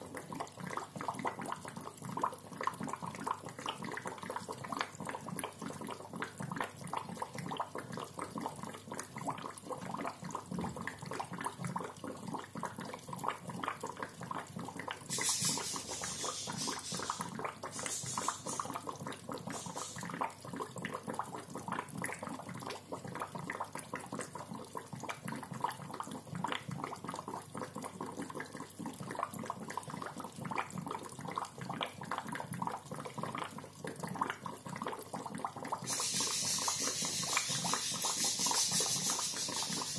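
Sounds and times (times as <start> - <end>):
aquarium bubbler gurgling: 0.0 - 39.9
brief hissing spurts: 15.1 - 20.2, 35.9 - 39.9.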